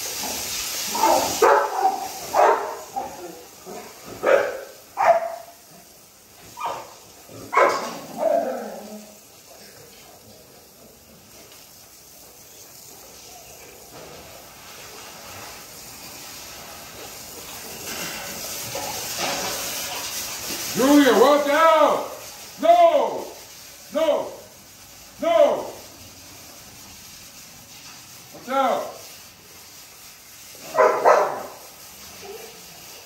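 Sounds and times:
steady hiss: 0.0 - 33.0
dogs barking: 0.9 - 5.6, 6.5 - 8.9, 30.6 - 31.6.

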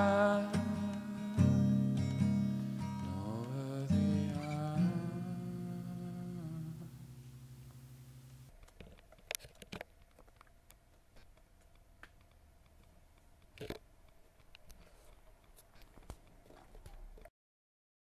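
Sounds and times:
acoustic guitar chord ringing: 0.0 - 8.4.

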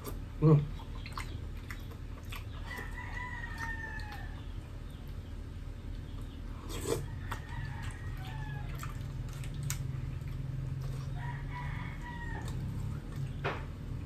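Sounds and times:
steady low hum: 0.0 - 14.0
rooster crowing: 2.7 - 4.4, 7.0 - 8.8, 11.0 - 12.9.

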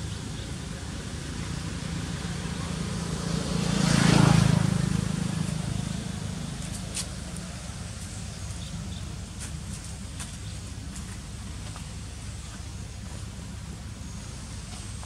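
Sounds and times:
motor vehicle passing: 1.0 - 9.3.

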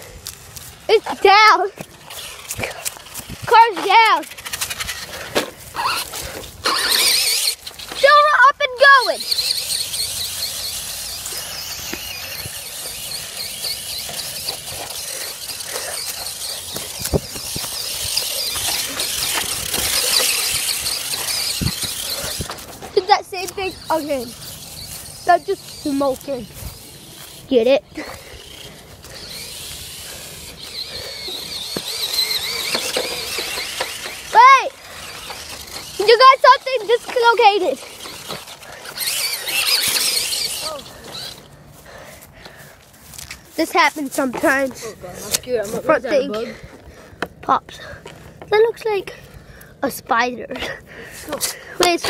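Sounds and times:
electric rc car whine: 0.0 - 49.7
rc car knocking over bumps: 1.8 - 8.1, 9.0 - 25.8, 29.2 - 41.4.

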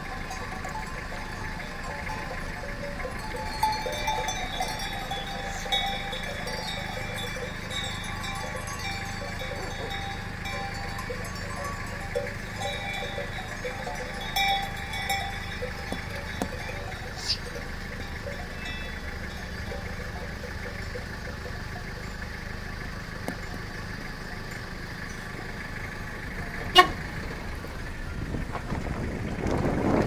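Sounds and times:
goat bells ringing and clinking: 0.0 - 27.7.

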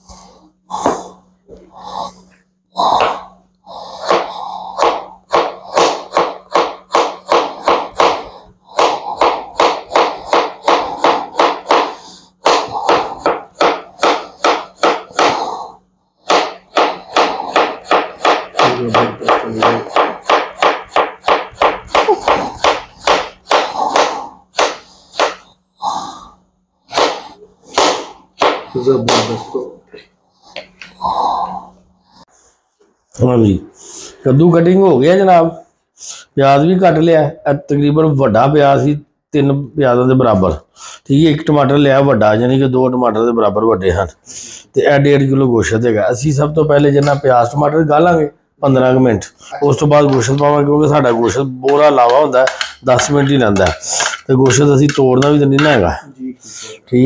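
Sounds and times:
knife chopping on cutting board: 4.0 - 15.4, 16.3 - 25.5, 26.9 - 29.4.

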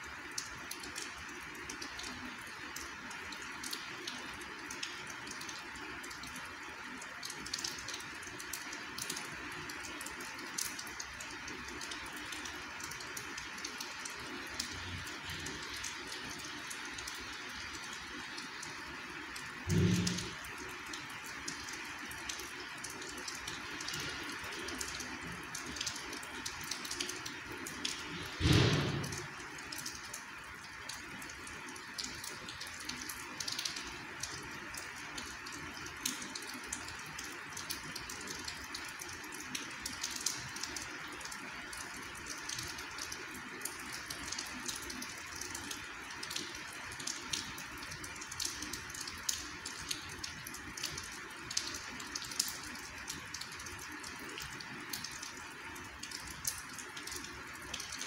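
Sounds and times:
light rain falling: 0.0 - 58.0
loud thump: 28.4 - 29.2.

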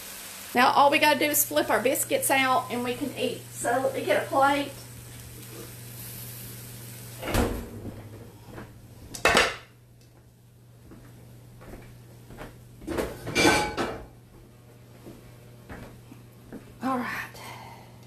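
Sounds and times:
soft sizzle in skillet: 0.0 - 7.2
skillet and plate clattering: 12.9 - 14.1.

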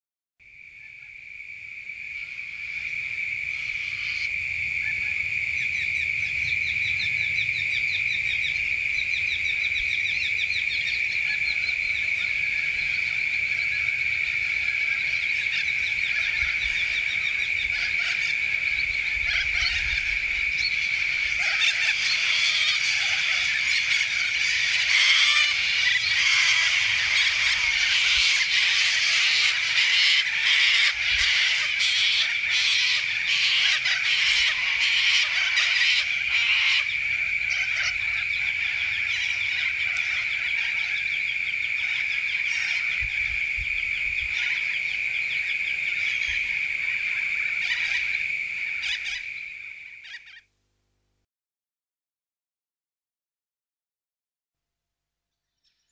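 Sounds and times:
high-pitched insect drone: 2.2 - 50.2
birds screeching: 3.5 - 50.5.

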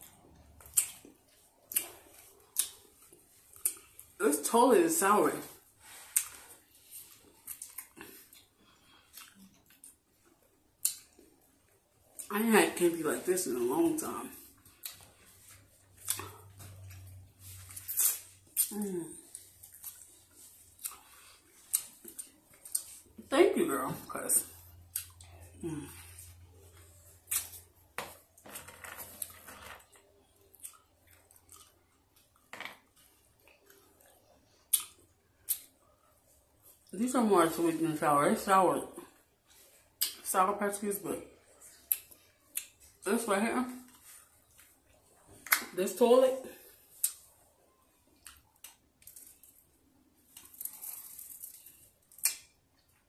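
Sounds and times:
chewing: 0.0 - 4.2, 5.8 - 12.3, 14.4 - 23.2, 24.5 - 27.7, 29.1 - 36.9
wet mouth smacks and clicks: 34.7 - 35.7, 52.2 - 52.5
crinkly rustle: 49.0 - 52.1.

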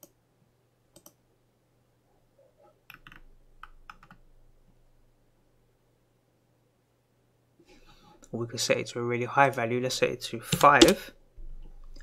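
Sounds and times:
keyboard and mouse clicks: 0.9 - 1.2, 2.8 - 4.2, 10.5 - 11.0.

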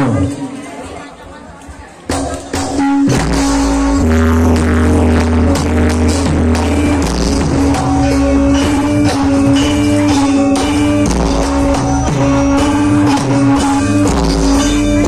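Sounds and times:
percussive beat: 2.1 - 15.0
loud music with held note: 2.5 - 15.0.

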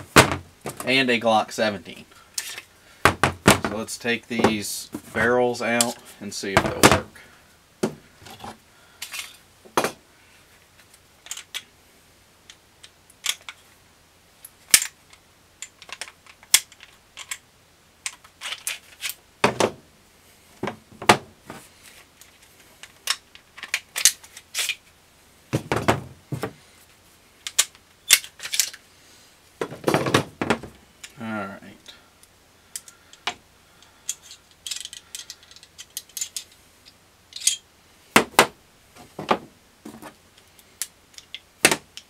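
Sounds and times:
parts knocking on wooden bench: 3.1 - 3.8, 19.4 - 19.8, 25.5 - 26.6, 29.6 - 30.8
metallic clicks of pistol parts: 10.8 - 11.7, 12.4 - 13.6, 14.4 - 17.4, 18.0 - 19.2, 22.2 - 24.8, 27.4 - 28.8, 32.2 - 37.7, 40.4 - 42.0.

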